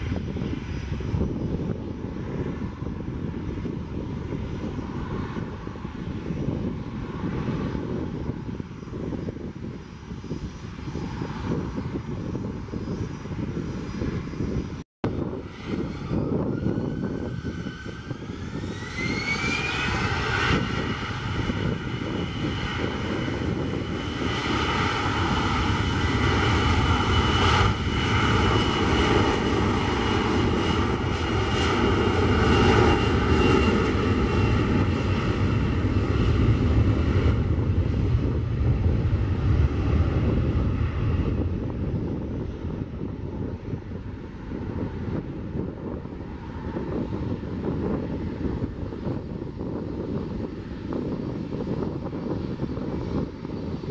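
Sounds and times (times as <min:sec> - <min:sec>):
distant jet rumble: 0:00.0 - 0:53.9
jet engines spooling up: 0:15.2 - 0:44.0.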